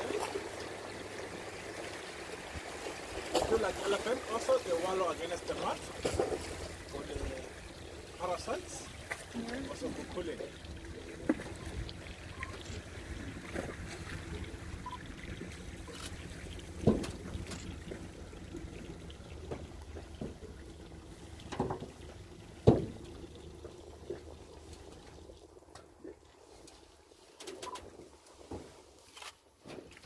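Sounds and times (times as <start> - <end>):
boat motor idling hum: 0.0 - 27.0
water lapping against boat hull: 0.0 - 30.0.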